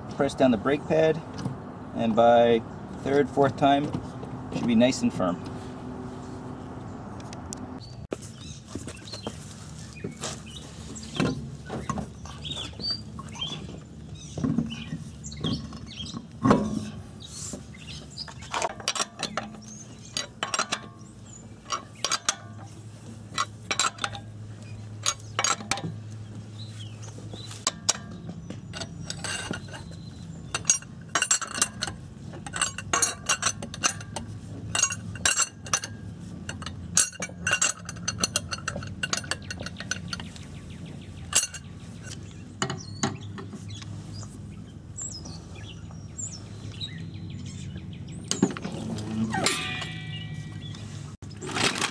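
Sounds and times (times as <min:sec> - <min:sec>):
low steady hum: 0:00.0 - 0:51.9
lug nuts clicking metal: 0:18.2 - 0:26.2, 0:27.1 - 0:43.9.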